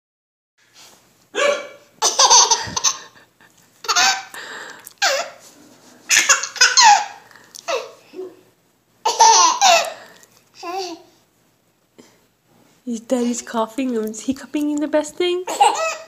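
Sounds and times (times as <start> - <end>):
adult hiccuping: 1.3 - 2.9
baby laughing: 2.0 - 3.2, 3.8 - 4.4, 5.0 - 5.4, 6.1 - 8.4, 9.0 - 10.0, 10.6 - 11.1, 15.5 - 16.0.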